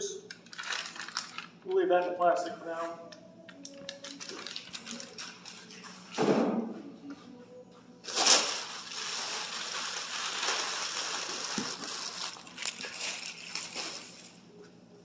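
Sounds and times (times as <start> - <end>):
plastic wrapping rustling: 0.4 - 2.1, 3.6 - 6.1, 8.0 - 14.7.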